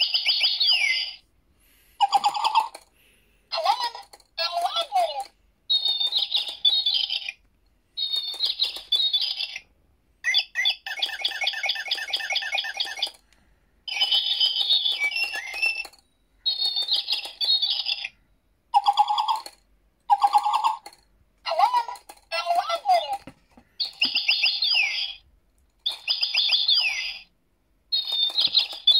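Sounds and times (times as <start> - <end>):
electronic bird chirps: 0.0 - 1.3, 5.7 - 13.2, 13.9 - 19.5, 20.1 - 20.9, 23.8 - 27.3, 27.9 - 28.9.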